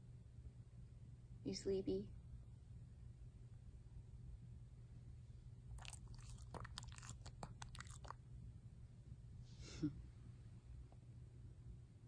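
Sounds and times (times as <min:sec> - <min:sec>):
dog licking lips: 0:05.8 - 0:08.2.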